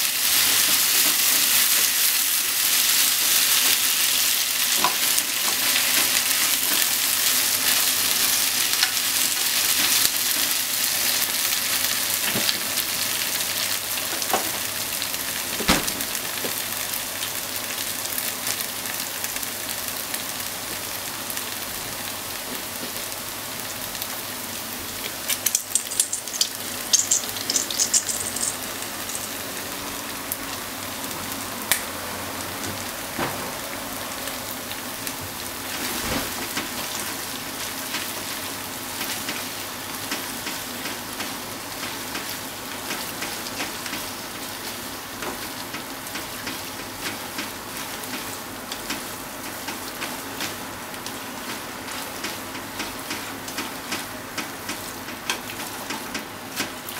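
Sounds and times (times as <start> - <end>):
sharp crackling in a pan: 0.0 - 31.9, 36.5 - 56.9
meat and onions sizzling in a pan: 0.0 - 33.0, 36.7 - 56.9
chopsticks scraping a pan: 25.3 - 29.4.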